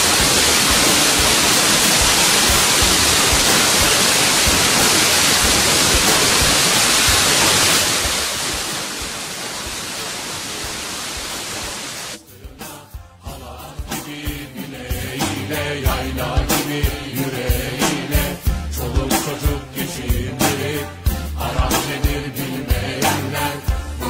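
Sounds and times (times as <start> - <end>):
small waterfall rushing: 0.0 - 12.2.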